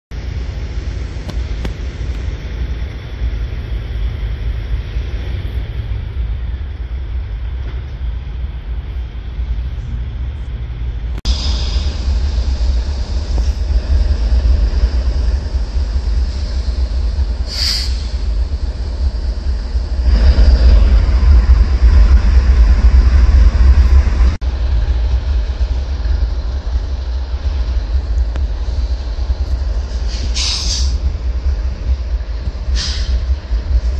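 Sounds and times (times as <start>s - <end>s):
rail-yard machinery: 0.1s - 33.9s
traffic rumble: 0.1s - 33.9s
short high hiss: 17.4s - 18.3s, 29.8s - 31.0s, 32.7s - 33.3s.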